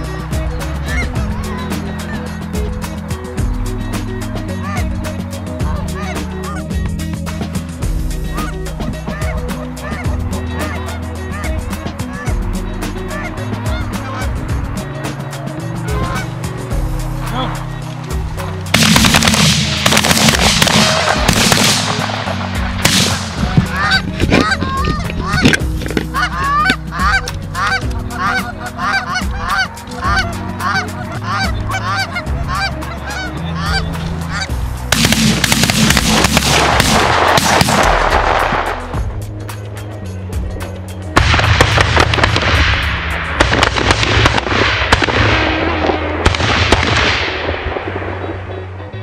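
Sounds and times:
geese honking: 0:00.0 - 0:07.2, 0:08.0 - 0:38.7
background music: 0:00.0 - 0:49.0.

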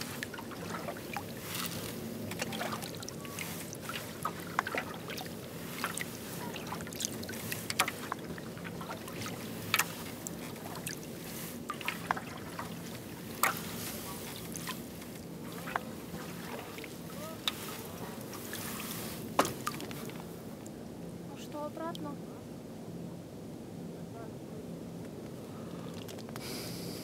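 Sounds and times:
paddle strokes in water: 0:00.0 - 0:20.6
water drips and splashes: 0:00.0 - 0:20.7
steady low hum: 0:00.0 - 0:27.0.

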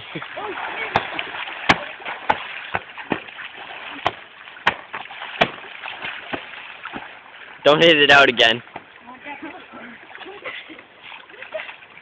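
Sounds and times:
pool water splashing: 0:00.0 - 0:12.0
sharp water slaps: 0:00.2 - 0:07.6.

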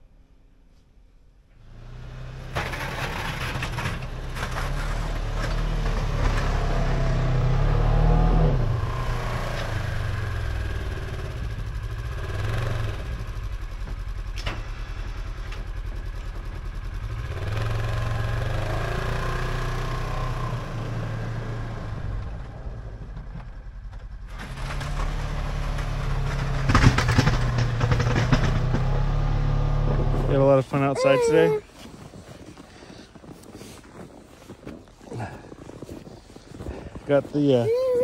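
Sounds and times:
snow plow engine running: 0:01.6 - 0:31.6.

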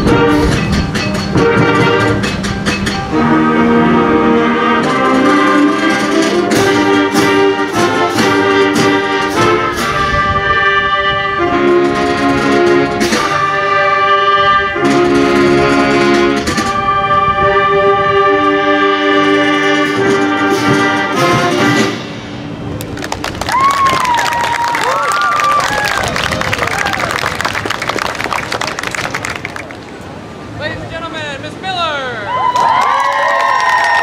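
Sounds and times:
concert band playing chords: 0:00.0 - 0:23.0
percussion strokes: 0:00.0 - 0:23.4.

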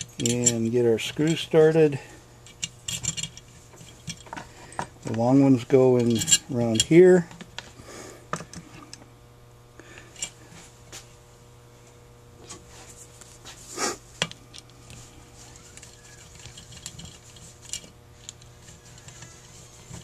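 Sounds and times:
metal rattle: 0:00.0 - 0:01.5
small metal parts clinking: 0:00.0 - 0:01.8, 0:02.4 - 0:07.2, 0:15.6 - 0:19.2
low steady hum: 0:00.0 - 0:20.0.

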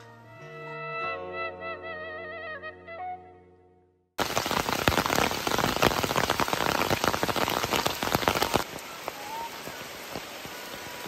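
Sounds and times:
heavy rain falling: 0:04.2 - 0:11.0.

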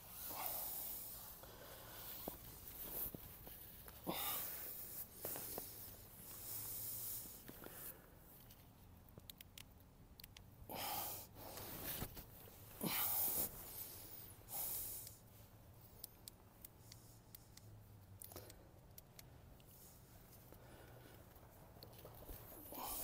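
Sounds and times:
light ticks: 0:08.4 - 0:10.5, 0:15.9 - 0:19.8.

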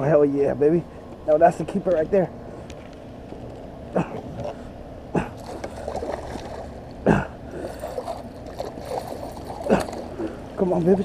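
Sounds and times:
gurgling water: 0:05.1 - 0:11.0
fish splashing at water surface: 0:05.2 - 0:06.8, 0:07.6 - 0:10.4.

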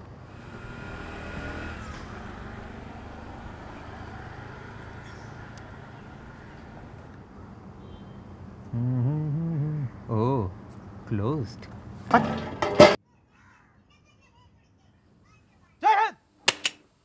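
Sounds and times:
distant traffic: 0:00.0 - 0:13.0.

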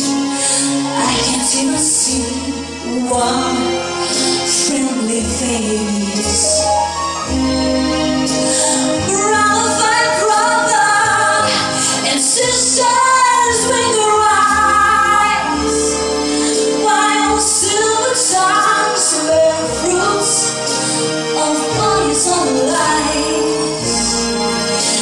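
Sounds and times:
instrumental backing music: 0:00.0 - 0:25.0
woman singing into a microphone: 0:00.9 - 0:06.7, 0:08.7 - 0:15.7, 0:16.4 - 0:20.7, 0:21.4 - 0:23.7.

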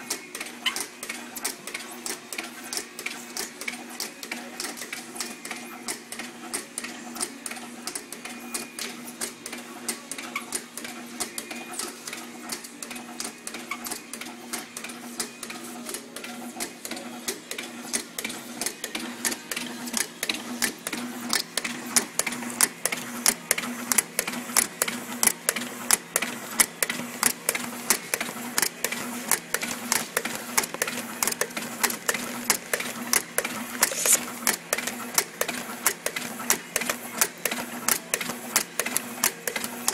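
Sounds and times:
machine clicking and clacking: 0:08.8 - 0:39.9.

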